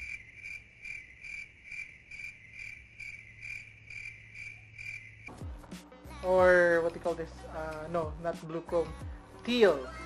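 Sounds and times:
crickets chirping: 0.0s - 5.3s.

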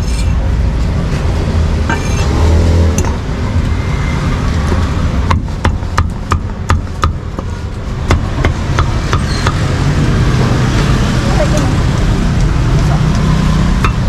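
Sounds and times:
low rumble of road traffic: 0.0s - 14.0s
cleaver chopping meat: 5.2s - 9.7s, 13.7s - 14.0s.

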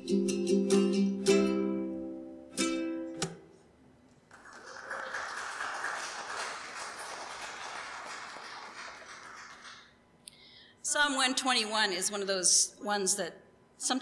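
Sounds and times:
ukulele strumming chords: 0.0s - 3.6s.

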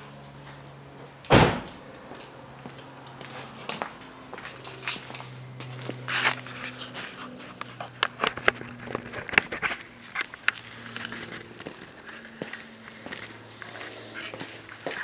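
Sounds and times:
footsteps: 0.3s - 15.0s.

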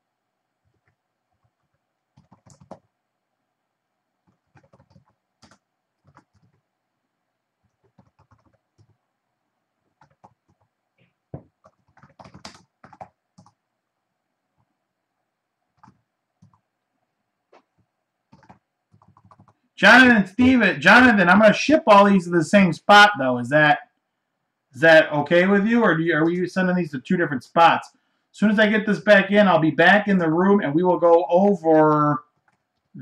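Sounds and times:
faint keyboard typing: 0.6s - 3.0s, 4.2s - 6.7s, 7.6s - 9.0s, 9.8s - 13.6s, 15.7s - 19.8s, 32.0s - 33.0s.

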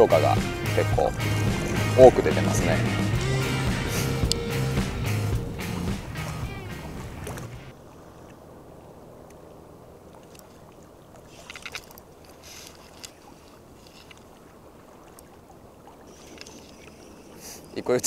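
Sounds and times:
background music: 0.0s - 7.7s
small waves lapping: 0.0s - 18.0s
faint ticks: 15.0s - 15.3s, 16.1s - 17.8s.

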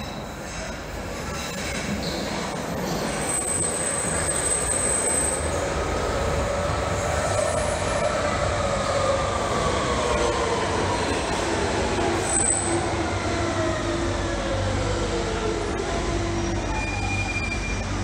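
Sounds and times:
train rumbling: 0.0s - 18.0s
high thin brake squeal: 16.5s - 18.0s.

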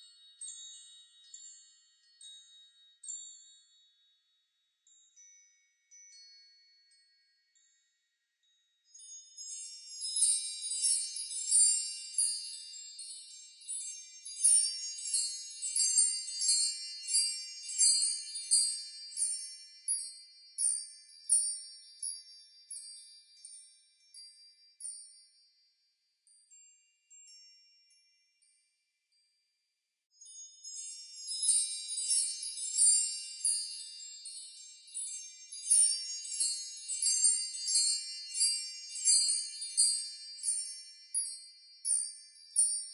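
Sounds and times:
tinkling chime music: 0.0s - 29.5s, 30.1s - 42.9s.

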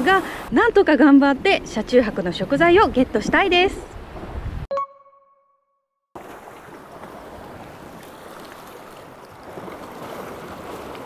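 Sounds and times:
sea waves: 0.0s - 4.6s, 6.2s - 11.0s
wind: 0.0s - 4.8s, 6.1s - 11.0s
wind buffeting microphone: 1.4s - 4.7s.

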